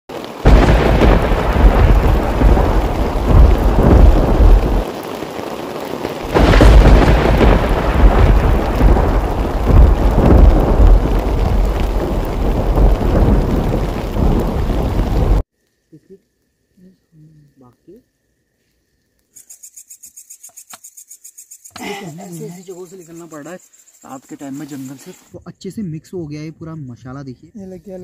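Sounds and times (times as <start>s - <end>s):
heavy rain: 0.1s - 15.4s
thunder: 0.2s - 15.4s.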